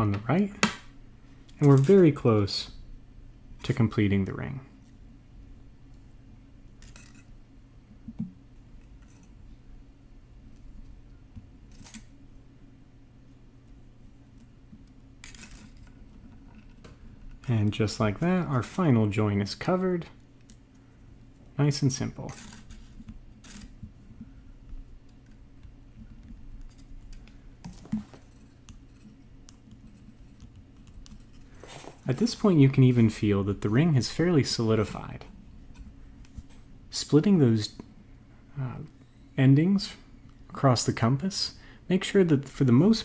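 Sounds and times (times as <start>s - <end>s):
steady low hum: 0.0s - 43.0s
wire being pulled and coiled: 14.4s - 17.6s, 22.2s - 24.0s.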